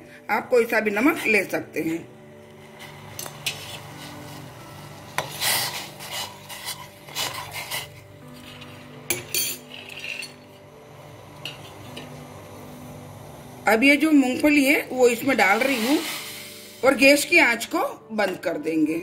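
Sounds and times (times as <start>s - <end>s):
spoon scraping a steel pot: 2.8s - 10.6s, 11.4s - 12.2s.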